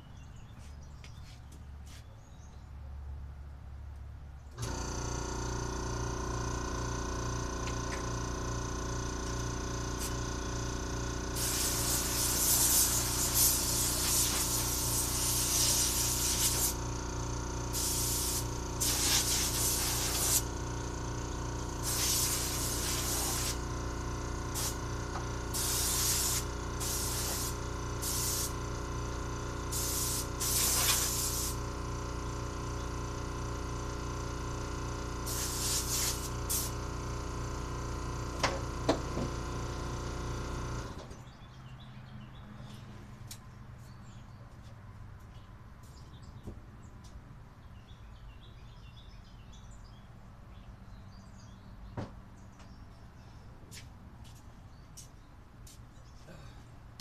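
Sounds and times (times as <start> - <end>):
air blowgun hissing: 11.4 - 16.8, 17.7 - 20.5, 21.8 - 23.6, 24.5 - 24.8, 25.5 - 28.6, 29.7 - 31.6, 35.2 - 36.8.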